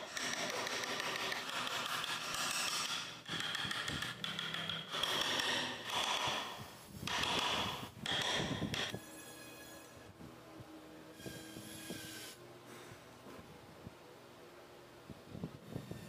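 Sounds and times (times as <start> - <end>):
chisel scraping wood: 0.0 - 8.9.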